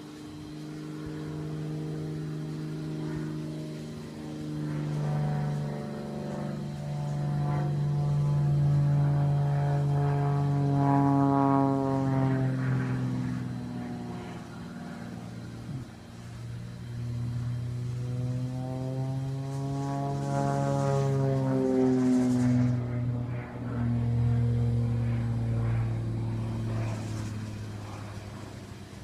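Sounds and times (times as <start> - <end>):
propeller airplane engine: 0.0 - 29.0.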